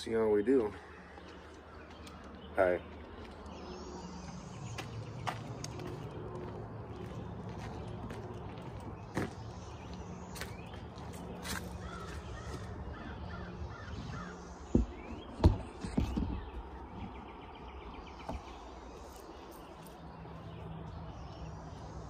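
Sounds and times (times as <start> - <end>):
birds calling: 0.0 - 22.0.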